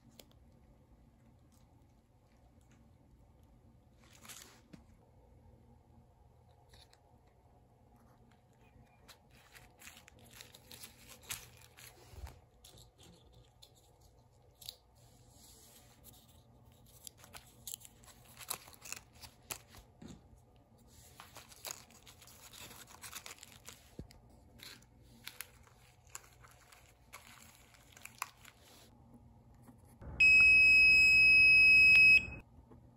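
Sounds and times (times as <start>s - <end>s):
bubble wrap crinkling: 3.9s - 4.8s, 8.6s - 14.4s, 15.8s - 20.2s, 20.8s - 28.9s
high electronic beep: 30.1s - 32.4s.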